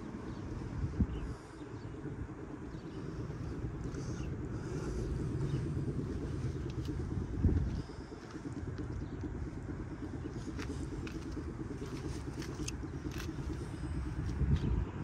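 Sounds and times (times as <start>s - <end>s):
car driving rumble: 0.0s - 15.0s.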